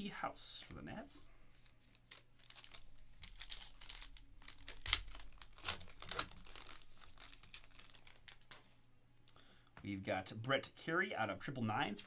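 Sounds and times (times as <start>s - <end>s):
foil wrapper tearing and crinkling: 2.0s - 8.6s.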